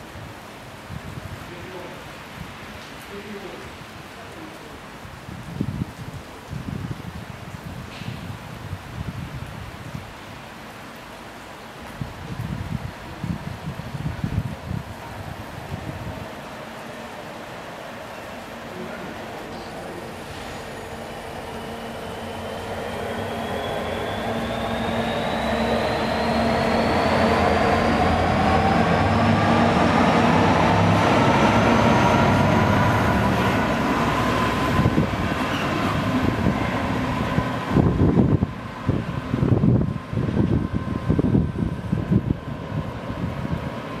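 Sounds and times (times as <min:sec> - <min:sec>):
diesel locomotive passing: 0:14.7 - 0:44.0
express train rushing past: 0:14.7 - 0:44.0.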